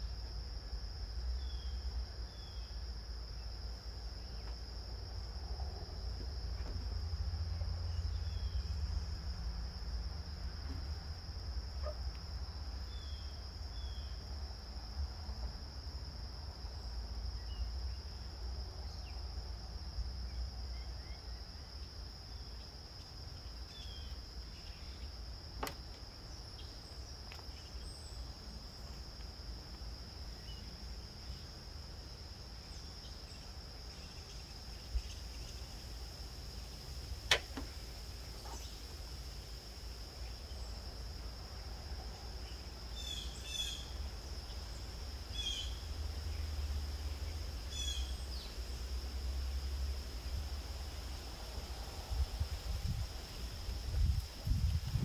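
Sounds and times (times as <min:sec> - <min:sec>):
sharp clicks: 0:37.3 - 0:37.7.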